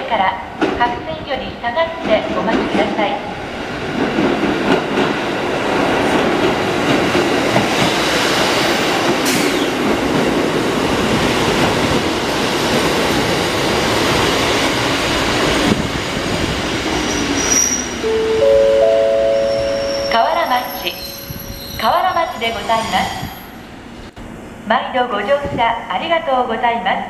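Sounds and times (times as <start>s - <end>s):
train wheels clattering on rails: 0.6s - 1.1s, 3.8s - 17.6s
high falling squeal: 17.0s - 18.4s, 19.2s - 23.6s.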